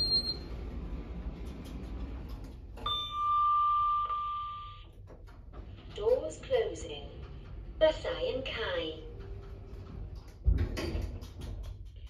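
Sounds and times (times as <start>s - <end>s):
lift arrival chime ding: 0.0s - 0.6s, 2.8s - 4.9s
lift humming: 0.0s - 11.2s.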